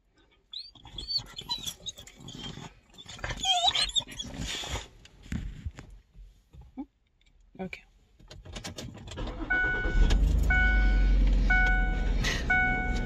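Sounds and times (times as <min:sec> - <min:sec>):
dog whining and yowling: 0:00.5 - 0:04.8.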